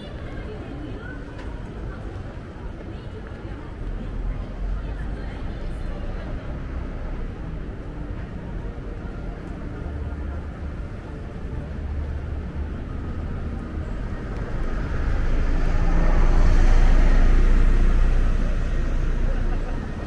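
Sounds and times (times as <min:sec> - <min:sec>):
city traffic rumble: 0:00.0 - 0:20.0
vehicle passing close by: 0:13.9 - 0:20.0.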